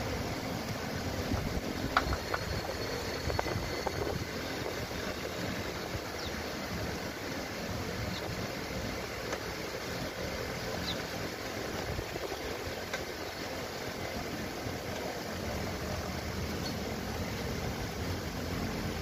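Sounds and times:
low mechanical rumble with hiss: 0:00.0 - 0:19.0.

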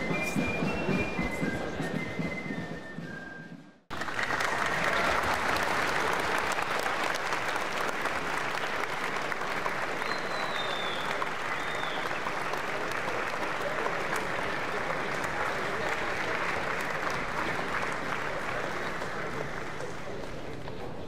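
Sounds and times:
band music: 0:00.0 - 0:03.6
audience applauding: 0:03.9 - 0:21.0.

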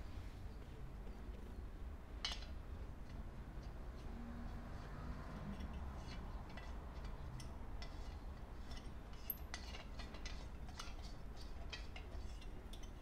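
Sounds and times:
metallic ticks and light scraping: 0:05.4 - 0:13.0.

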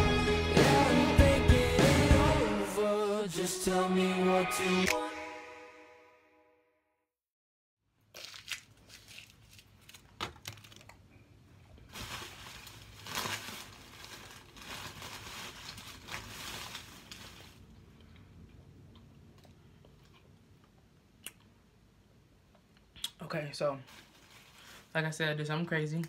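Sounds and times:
music: 0:00.0 - 0:06.8
plastic wrapper crinkling: 0:08.1 - 0:11.0, 0:11.8 - 0:17.7, 0:23.8 - 0:24.9.

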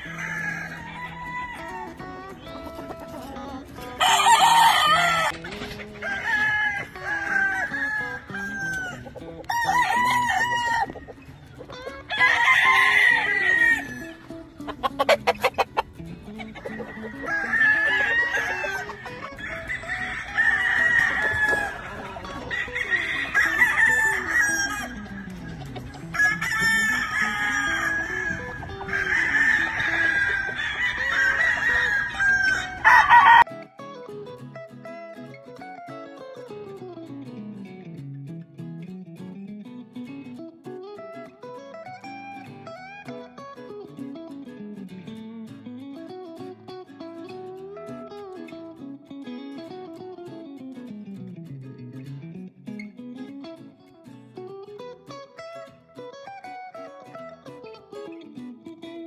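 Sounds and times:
roosters crowing: 0:00.0 - 0:11.2, 0:11.9 - 0:33.5.

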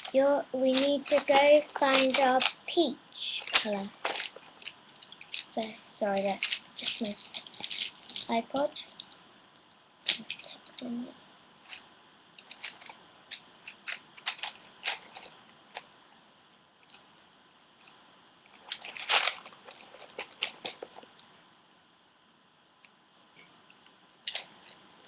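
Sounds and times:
pens and pencils clattering: 0:00.0 - 0:09.2, 0:10.0 - 0:10.9, 0:12.4 - 0:15.9, 0:18.6 - 0:21.2, 0:24.3 - 0:24.8.

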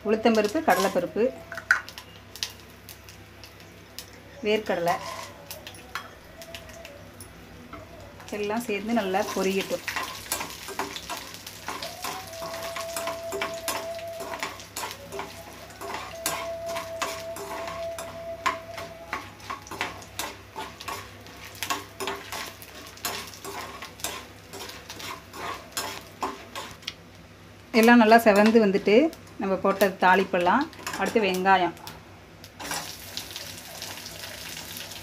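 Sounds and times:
seeds sizzling in oil: 0:00.0 - 0:05.8, 0:08.2 - 0:27.0, 0:27.6 - 0:31.8, 0:32.4 - 0:35.0
spoon scraping metal pan: 0:04.8 - 0:05.4, 0:09.0 - 0:26.8.

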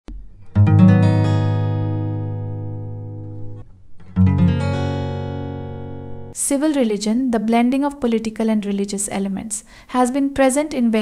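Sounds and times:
strummed guitar chords: 0:00.1 - 0:06.4.

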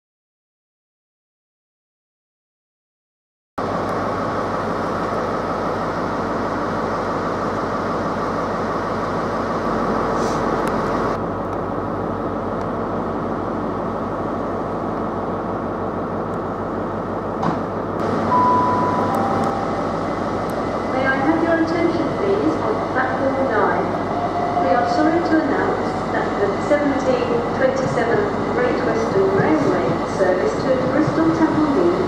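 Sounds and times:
diesel train engines humming: 0:03.6 - 0:32.0
high steady beep: 0:18.3 - 0:20.0.

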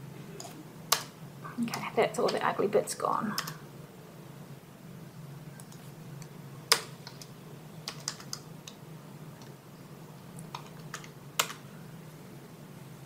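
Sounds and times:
low steady hum: 0:00.0 - 0:13.0
computer keyboard key presses: 0:06.7 - 0:08.8.

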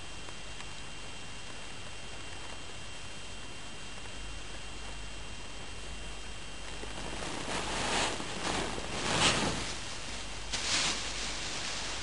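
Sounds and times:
dog rustling on fabric cushion: 0:06.7 - 0:12.0.

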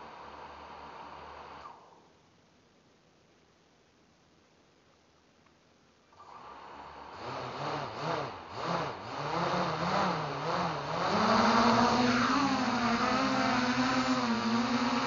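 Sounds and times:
small motor running: 0:06.2 - 0:15.0.

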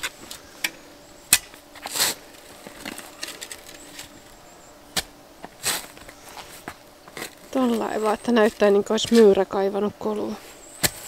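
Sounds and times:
spade crunching into soil: 0:01.3 - 0:09.4, 0:10.5 - 0:11.0
spade scraping gritty soil: 0:01.3 - 0:09.5, 0:10.2 - 0:11.0.

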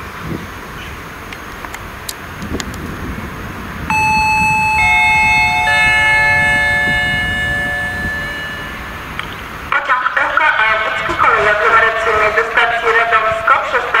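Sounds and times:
descending bell-like chime: 0:03.9 - 0:09.2.

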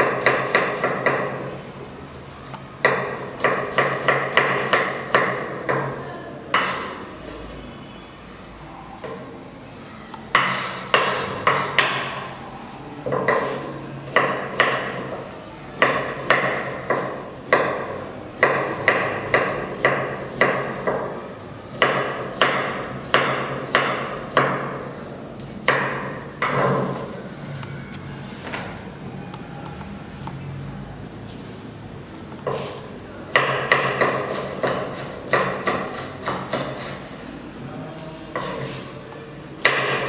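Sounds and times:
knife chopping on a wooden board: 0:02.8 - 0:05.9, 0:15.8 - 0:21.1, 0:33.3 - 0:37.0, 0:39.6 - 0:40.0.

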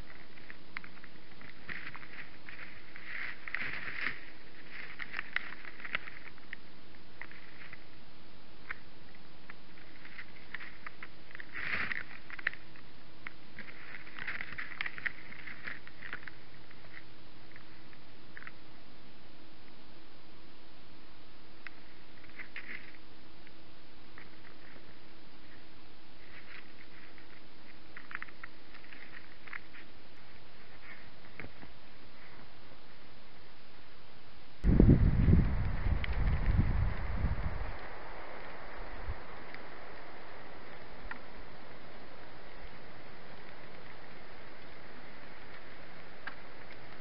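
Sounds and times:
faint ticks and crackles: 0:00.0 - 0:47.0
microphone hiss and hum: 0:00.0 - 0:47.0.

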